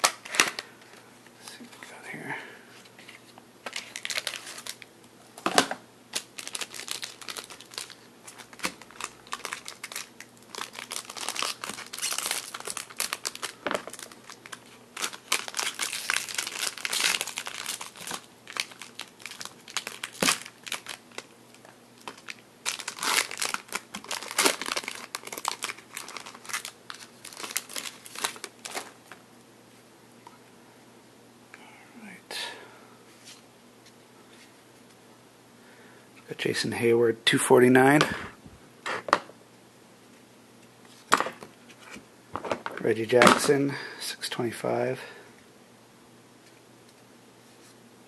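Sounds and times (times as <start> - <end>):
foil wrapper crinkling and tearing: 3.6 - 4.9, 6.1 - 29.0.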